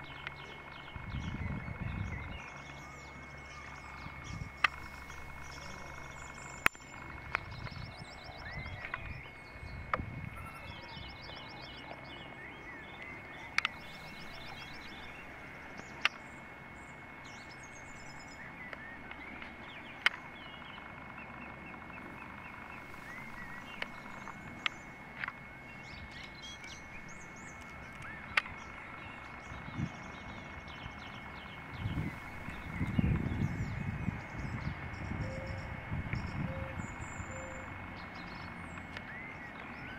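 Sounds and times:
small birds chirping and trilling: 0.0 - 39.9
steady outdoor hiss: 0.0 - 39.9
sharp clicks: 3.6 - 9.3, 13.0 - 15.2, 15.8 - 16.2, 18.4 - 29.8.

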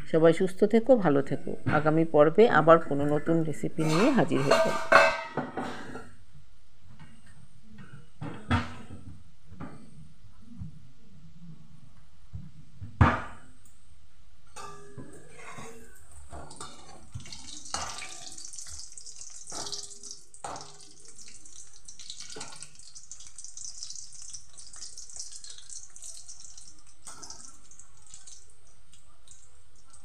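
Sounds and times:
metal skimmer scraping pan: 3.8 - 6.0, 14.6 - 21.1
oil sizzling and bubbling: 3.8 - 6.0, 14.6 - 30.0.

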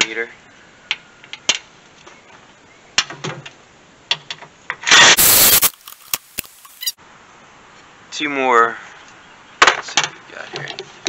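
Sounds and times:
loud rushing burst: 5.0 - 5.9.

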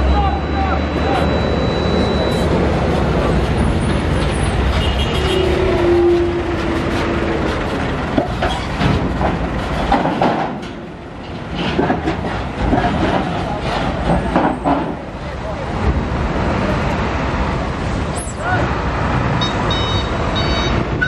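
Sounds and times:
steady tone: 0.0 - 3.4
diesel truck engine rumbling: 0.0 - 21.0
tyres clanking over steel plates: 3.0 - 15.2.

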